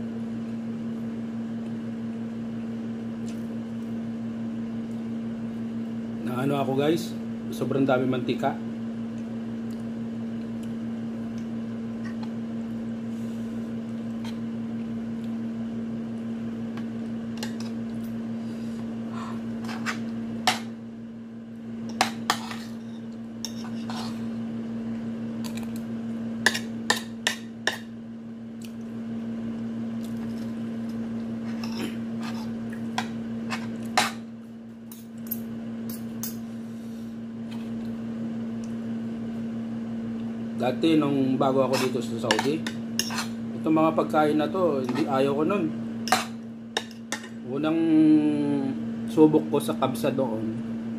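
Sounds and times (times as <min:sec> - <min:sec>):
steady hum: 0:00.0 - 0:50.9
spoon scraping a plate: 0:22.0 - 0:24.2, 0:31.4 - 0:34.2, 0:41.7 - 0:43.4, 0:44.8 - 0:45.2.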